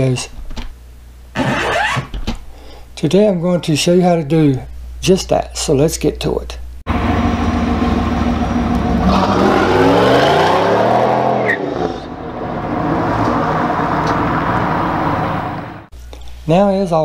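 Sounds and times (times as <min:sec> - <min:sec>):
car engine accelerating: 0:06.9 - 0:15.9.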